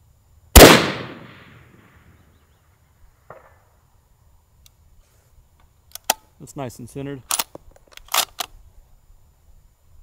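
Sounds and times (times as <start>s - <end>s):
bullet pinging steel target: 0.6s - 1.8s
rifle shot with echo: 0.6s - 2.0s.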